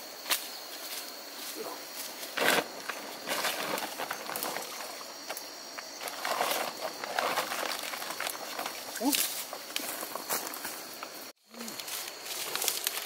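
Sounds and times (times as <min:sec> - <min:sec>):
corn stalks rustling: 0:00.2 - 0:13.0
plastic sack rustling: 0:02.3 - 0:05.2, 0:05.8 - 0:10.9.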